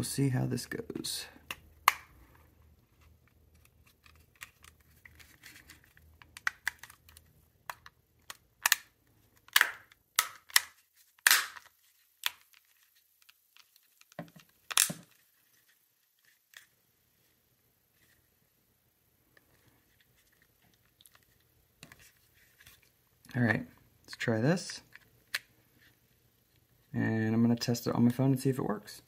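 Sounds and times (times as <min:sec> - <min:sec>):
plastic casing clicking and snapping: 0:03.5 - 0:12.6, 0:13.2 - 0:15.2.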